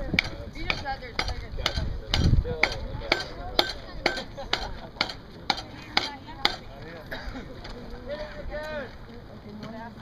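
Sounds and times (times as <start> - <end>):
sharp knocking on skewers: 0.0 - 6.6.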